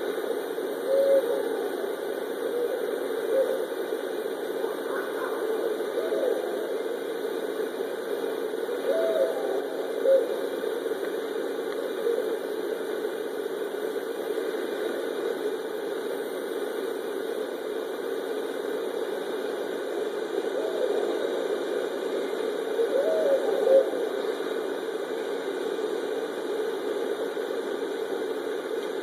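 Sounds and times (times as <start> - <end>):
steady low hum: 0.0 - 29.0
owls hooting: 0.7 - 3.7, 4.6 - 7.0, 8.7 - 10.5, 12.0 - 12.4, 20.5 - 21.4, 22.7 - 24.2.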